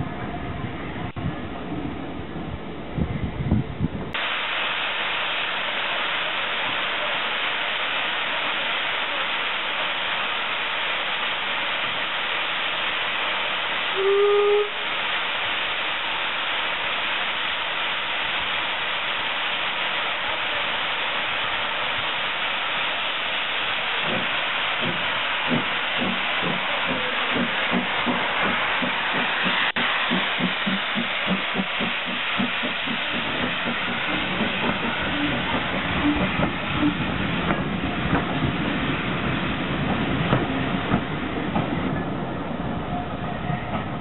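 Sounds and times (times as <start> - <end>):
steam locomotive hissing steam: 4.2 - 44.0
steam whistle blast: 13.9 - 15.1
locomotive exhaust beats: 20.3 - 44.0.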